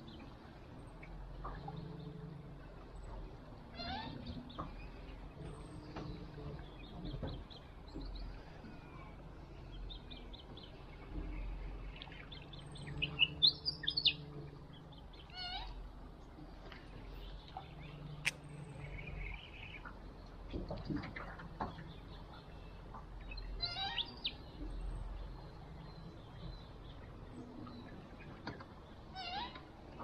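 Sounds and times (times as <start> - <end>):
birds chirping: 3.8 - 20.4.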